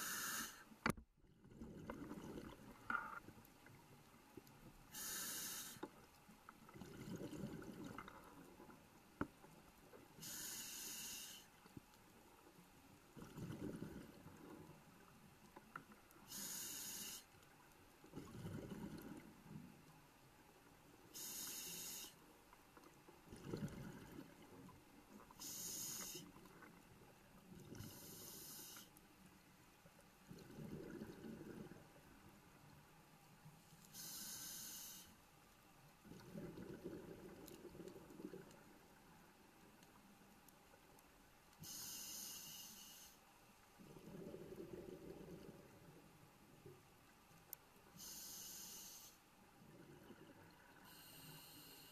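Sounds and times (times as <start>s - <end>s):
diver breathing through regulator: 0.0s - 0.7s, 4.9s - 5.8s, 10.2s - 11.5s, 27.8s - 28.9s, 33.9s - 35.2s, 41.6s - 43.2s, 48.0s - 49.3s, 50.8s - 51.9s.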